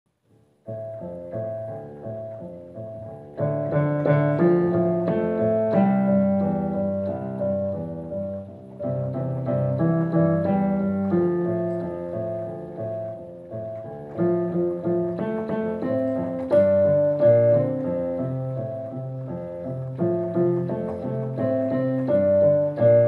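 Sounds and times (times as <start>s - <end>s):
piano music: 0.3s - 23.0s.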